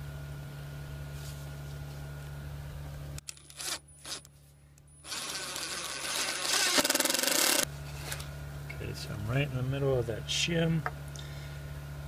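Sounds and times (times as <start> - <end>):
impact driver driving screw: 5.0 - 7.7.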